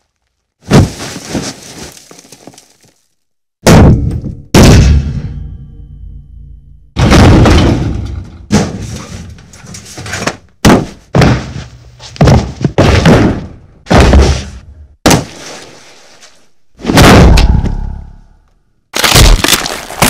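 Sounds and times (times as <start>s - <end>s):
heavy fight hits: 7.0s - 8.9s, 16.8s - 18.1s.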